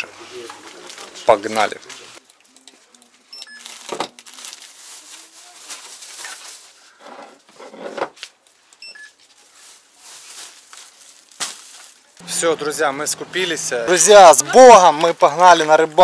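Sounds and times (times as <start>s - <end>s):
rustling of plastic packets: 0.1s - 7.5s, 8.2s - 16.0s
barcode scanner beeping: 3.3s - 3.7s, 8.8s - 9.2s, 12.2s - 14.0s.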